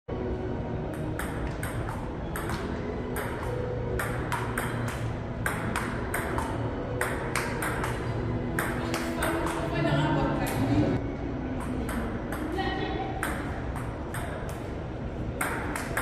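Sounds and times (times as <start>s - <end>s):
table tennis ball clicking: 13.2s - 14.7s.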